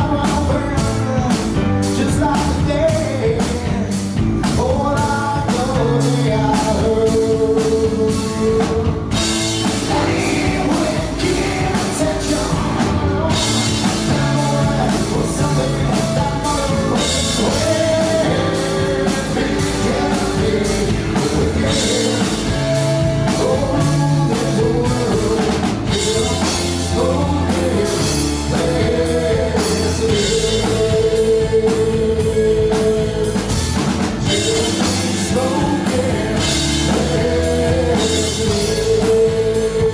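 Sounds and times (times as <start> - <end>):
man singing: 0.0 - 39.9
rock band playing: 0.0 - 39.9.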